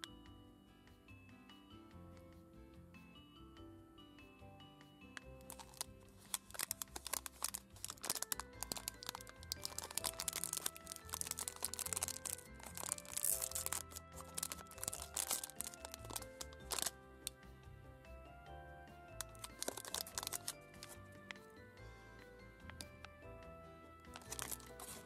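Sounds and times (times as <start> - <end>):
background music with held notes: 0.0 - 25.0
plastic wrapper crinkling and tearing: 5.5 - 17.4, 19.2 - 21.4, 24.1 - 25.0.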